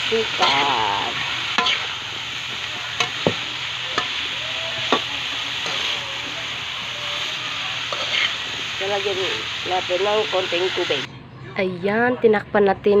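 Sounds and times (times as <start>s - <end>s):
vegetables sizzling in a pan: 0.0s - 11.1s
metal spatula stirring: 0.2s - 8.6s.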